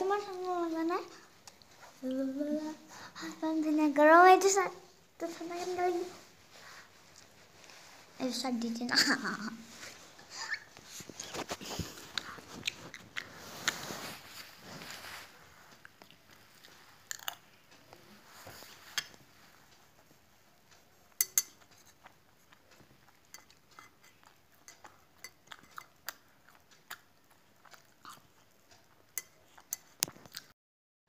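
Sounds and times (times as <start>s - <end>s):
spoon clinking on metal plate: 21.2s - 21.9s, 23.3s - 26.0s.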